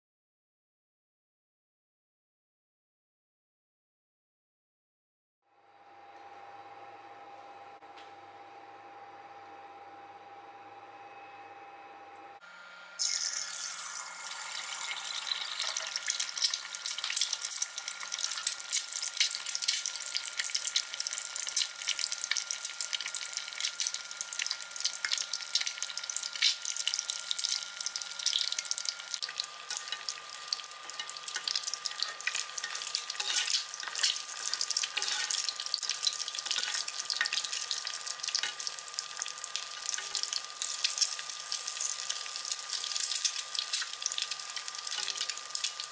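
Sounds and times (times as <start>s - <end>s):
egg sizzling in hot oil: 13.0s - 45.9s.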